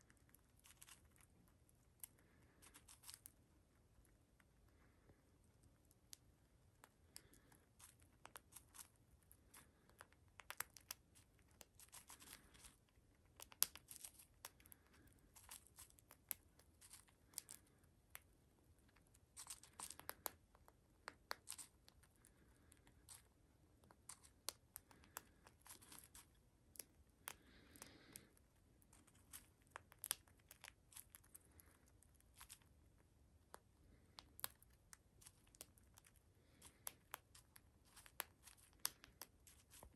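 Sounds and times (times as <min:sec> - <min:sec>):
bird beak cracking seeds: 0:00.0 - 0:03.4, 0:05.9 - 0:32.8, 0:33.4 - 0:39.9
seeds rustling in plastic dish: 0:36.6 - 0:39.9.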